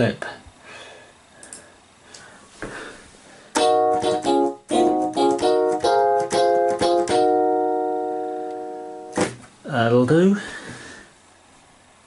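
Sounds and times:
synthesizer chord repeated: 3.6 - 9.2.

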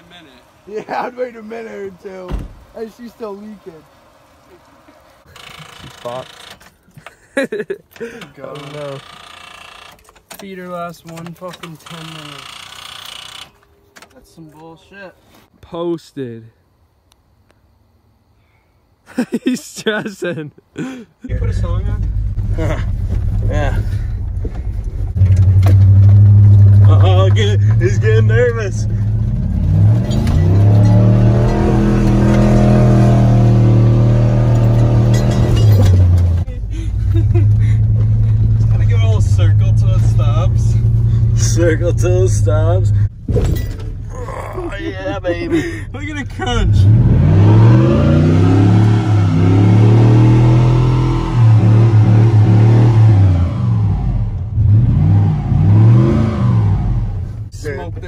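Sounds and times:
truck engine revving: 21.4 - 57.5.

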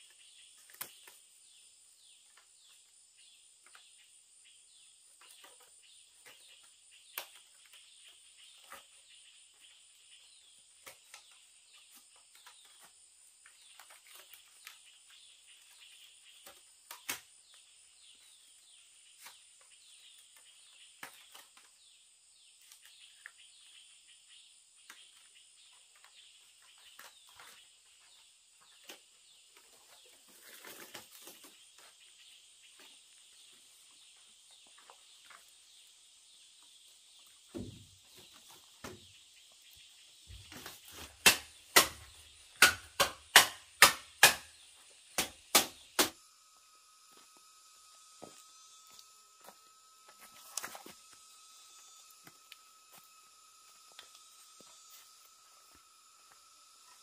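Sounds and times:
insect drone: 44.2 - 57.0.

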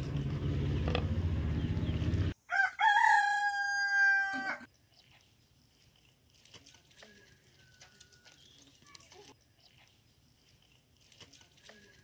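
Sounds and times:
rooster crowing: 2.4 - 4.7.

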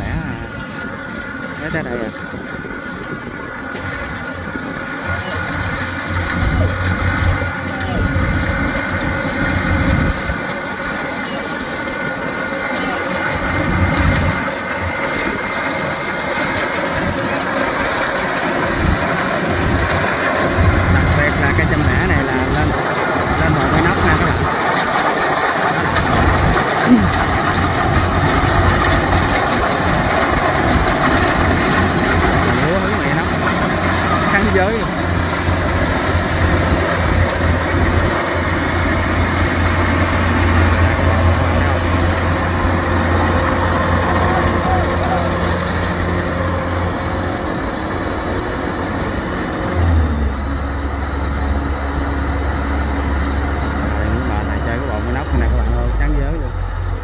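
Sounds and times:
clatter of threshing machinery: 0.0 - 57.0
combine harvester diesel engine: 0.0 - 57.0.

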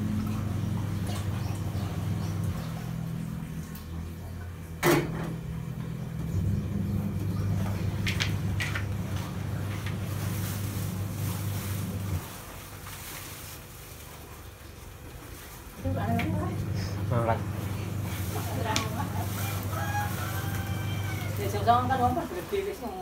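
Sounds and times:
electric motor humming: 15.8 - 22.4.

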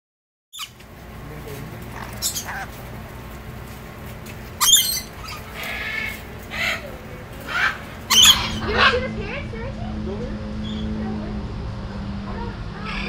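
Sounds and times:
lorikeets screeching: 0.6 - 0.9, 1.7 - 3.6, 4.3 - 9.2, 10.6 - 11.0, 12.8 - 13.0.

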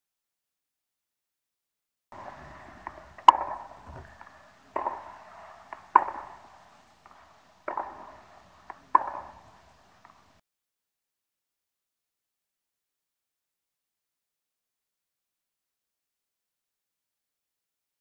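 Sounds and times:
soft knocks: 2.2 - 10.2
tennis racket hitting ball: 2.2 - 10.3.

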